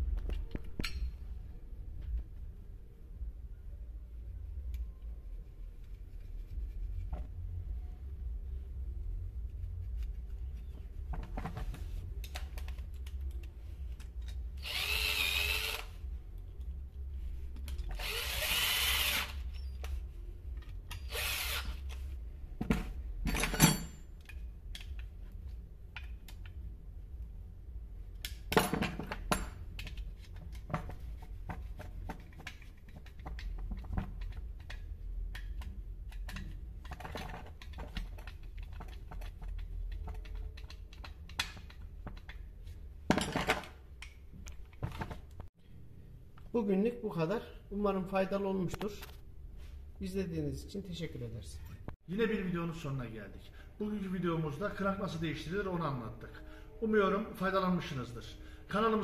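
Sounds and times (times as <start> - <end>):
power drill whirring: 14.6 - 16.0, 17.9 - 19.7, 21.0 - 21.8
tools clicking and knocking: 19.8 - 26.6, 28.2 - 42.5.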